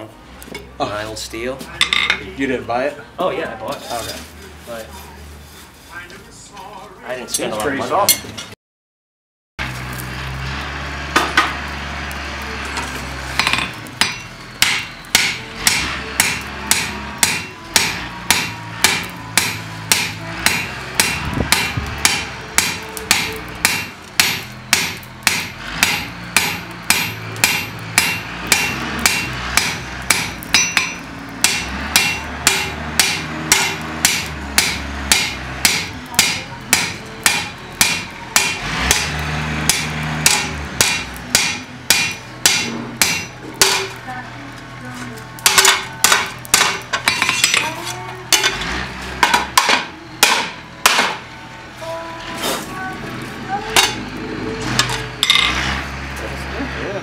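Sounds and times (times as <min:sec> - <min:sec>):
hammer striking steel on anvil: 0:12.8 - 0:44.0, 0:45.4 - 0:48.6, 0:49.2 - 0:51.3, 0:53.7 - 0:54.2, 0:54.8 - 0:55.6.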